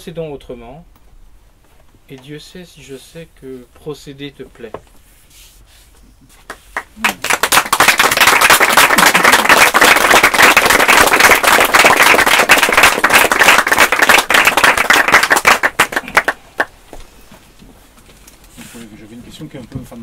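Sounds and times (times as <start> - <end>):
audience applauding: 6.5 - 16.8.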